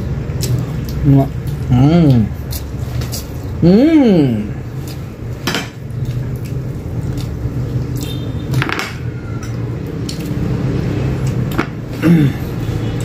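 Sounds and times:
chewing: 0:05.9 - 0:08.2, 0:09.4 - 0:10.6.

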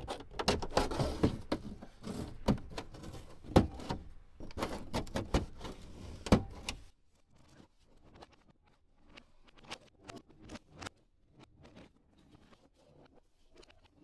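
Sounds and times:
hard plastic scraping and rattling: 0:00.0 - 0:08.4.

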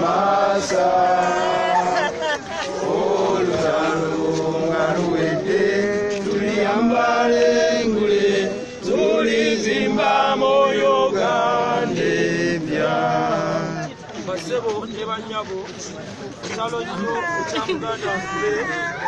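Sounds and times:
group of people chanting: 0:00.0 - 0:13.9.

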